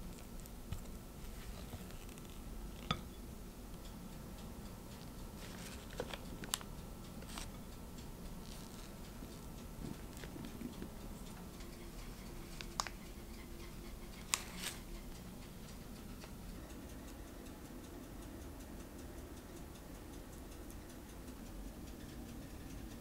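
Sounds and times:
plastic bag rustling: 0:05.4 - 0:07.5.

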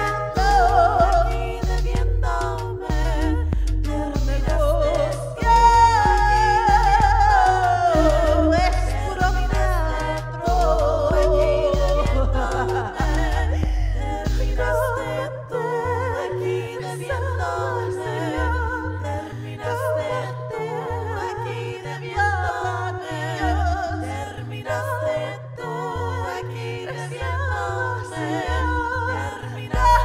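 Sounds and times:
backing track with bass line: 0:00.0 - 0:30.0
woman singing with vibrato: 0:00.0 - 0:30.0.

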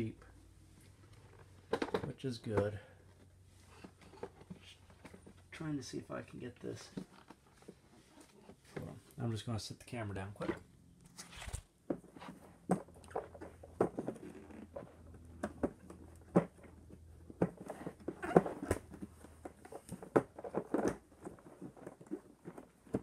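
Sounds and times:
plastic clicks and knocks: 0:01.7 - 0:02.7.

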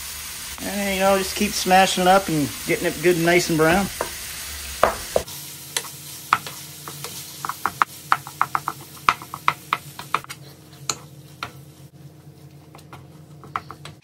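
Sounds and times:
light sizzle: 0:00.0 - 0:14.0
spatula tapping on frying pan: 0:04.8 - 0:10.3.

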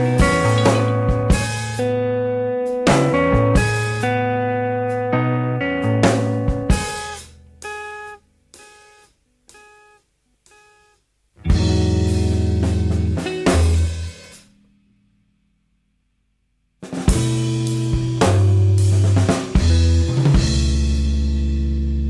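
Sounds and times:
electric guitar chords: 0:00.0 - 0:08.2, 0:11.4 - 0:14.2, 0:17.1 - 0:22.0.

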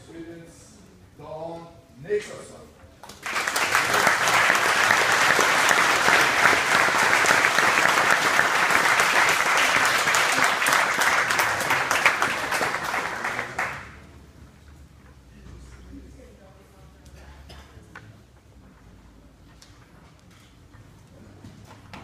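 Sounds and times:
crowd applauding: 0:03.0 - 0:14.0.

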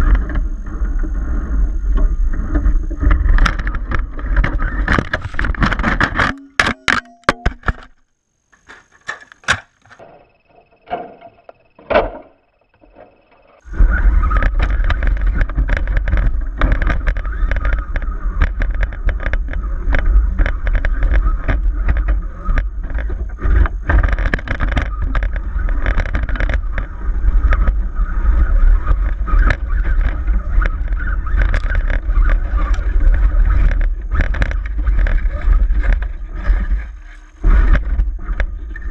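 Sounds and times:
loud steady low rumble: 0:13.6 - 0:38.9
sharp knocks and clatter: 0:14.3 - 0:27.8.

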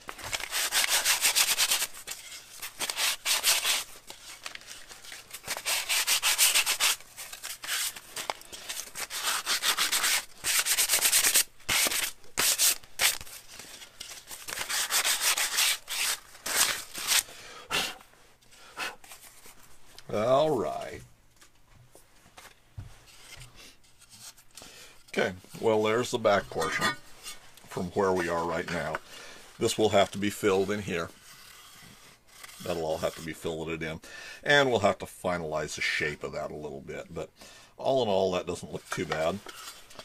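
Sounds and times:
sandpaper rubbing on wood: 0:00.4 - 0:01.9, 0:02.8 - 0:03.9, 0:05.5 - 0:07.0, 0:09.0 - 0:13.2, 0:14.6 - 0:17.2.

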